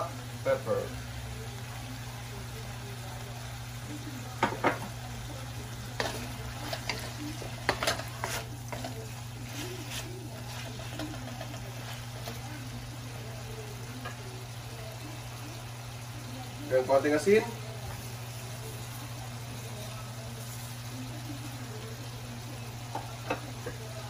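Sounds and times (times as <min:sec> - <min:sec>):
meat sizzling in a wok: 0:00.0 - 0:24.0
wooden spatula scraping a pan: 0:06.0 - 0:12.7.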